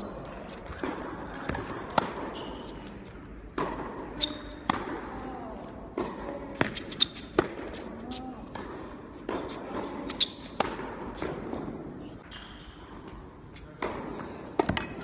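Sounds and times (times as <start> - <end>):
tennis balls struck by racquets: 0.5 - 12.0, 13.0 - 15.0
balls bouncing on hard court: 0.6 - 15.0.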